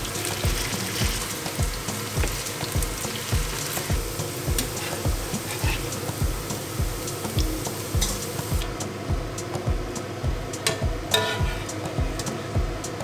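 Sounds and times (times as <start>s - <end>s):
potatoes sizzling in oil: 0.0s - 8.8s, 11.0s - 12.5s
steady low thumping beat: 0.0s - 13.0s
spatula stirring in pan: 0.1s - 8.5s, 11.1s - 11.9s.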